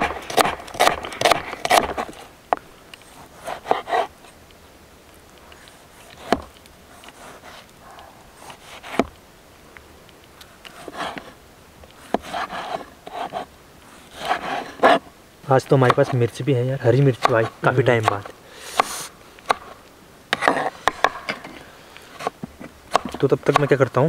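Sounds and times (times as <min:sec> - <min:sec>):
knife chopping on wooden board: 0:00.0 - 0:02.1, 0:06.2 - 0:06.5, 0:15.8 - 0:16.2, 0:17.2 - 0:21.4, 0:22.2 - 0:23.8.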